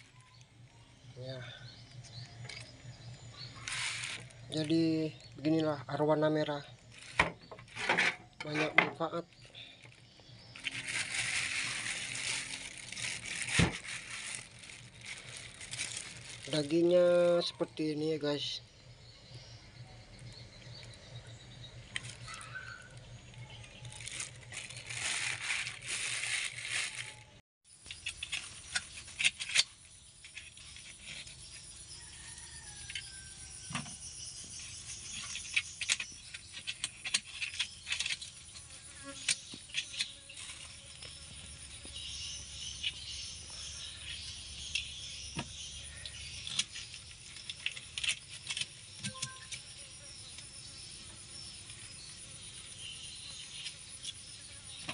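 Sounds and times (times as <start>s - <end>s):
plastic bag crinkling: 3.0s - 5.6s, 9.1s - 17.2s, 22.0s - 27.4s.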